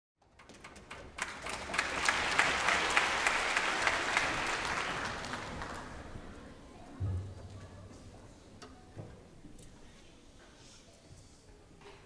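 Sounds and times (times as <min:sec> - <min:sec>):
audience applauding: 0:00.5 - 0:06.4.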